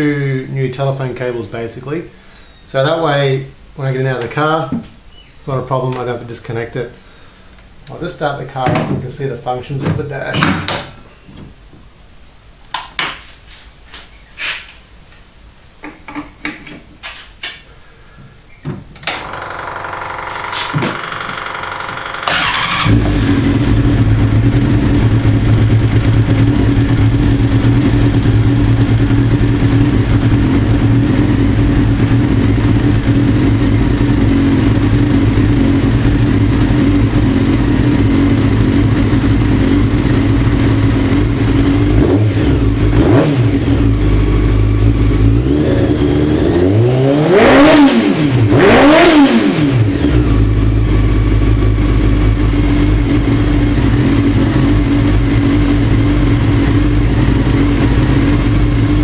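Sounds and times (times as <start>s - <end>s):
engine revving: 19.2s - 59.0s
race car engine idling: 19.6s - 41.9s, 50.1s - 59.0s.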